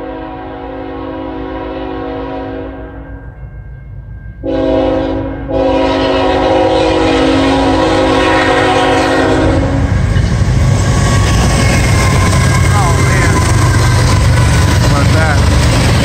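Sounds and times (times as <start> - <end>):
locomotive air horn: 0.0 - 3.0, 4.4 - 10.0, 11.5 - 14.2
train wheels rumbling on rails: 3.6 - 16.0.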